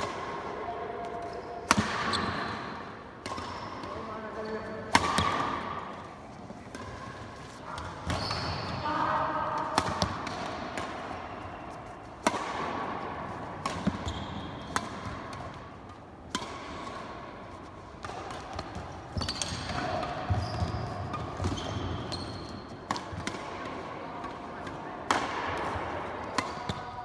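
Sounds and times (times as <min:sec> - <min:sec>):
racket hitting shuttlecock: 0:00.0 - 0:04.1, 0:04.8 - 0:08.8, 0:09.4 - 0:27.0
shoes squeaking on court: 0:01.2 - 0:02.7, 0:06.2 - 0:08.9, 0:13.8 - 0:14.8, 0:18.6 - 0:22.8.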